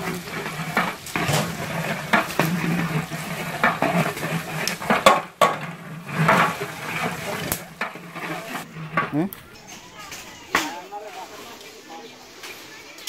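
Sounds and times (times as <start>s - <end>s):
metal rod scraping cooking pot: 0.0s - 10.4s.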